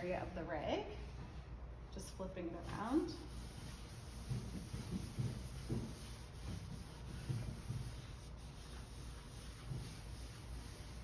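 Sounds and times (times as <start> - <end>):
rag rubbing on wood: 3.1 - 11.0.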